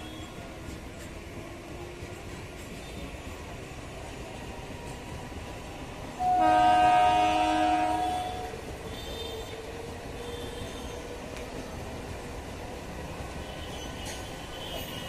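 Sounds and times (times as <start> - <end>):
electric train rumbling past: 0.0 - 15.0
train horn blast: 6.2 - 9.4.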